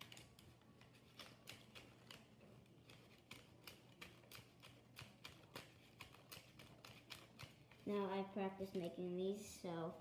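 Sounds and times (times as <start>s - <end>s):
paper rustling and clicking: 0.0s - 8.0s.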